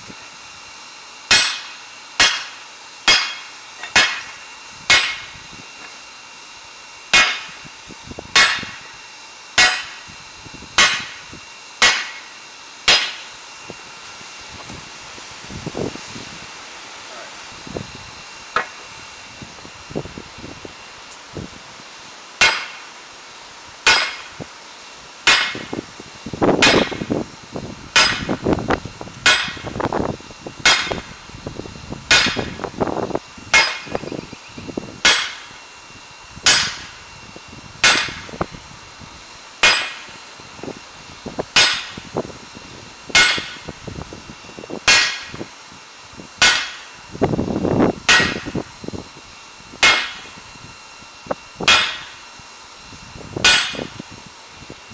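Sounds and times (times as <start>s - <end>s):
sledgehammer striking steel on anvil: 1.3s - 5.4s, 7.1s - 7.6s, 8.3s - 8.8s, 9.6s - 10.1s, 10.8s - 12.3s, 12.9s - 13.3s, 22.4s - 22.9s, 23.8s - 24.4s, 25.2s - 25.7s, 26.6s - 27.1s, 27.9s - 28.4s, 29.2s - 29.8s, 30.6s - 31.1s, 32.1s - 32.6s, 33.5s - 34.2s, 35.0s - 35.6s, 36.4s - 37.0s, 37.8s - 38.3s, 39.6s - 40.2s, 41.6s - 42.0s, 43.1s - 43.7s, 44.8s - 45.4s, 46.4s - 46.9s, 48.1s - 48.6s, 49.8s - 50.4s, 51.6s - 52.2s, 53.4s - 54.0s.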